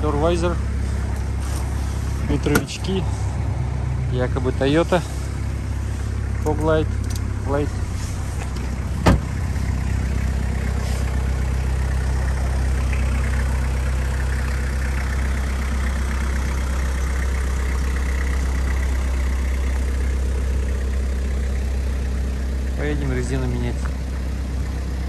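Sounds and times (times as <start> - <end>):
diesel engine idling: 0.0 - 25.0
car door being shut: 2.5 - 2.8, 8.4 - 9.5.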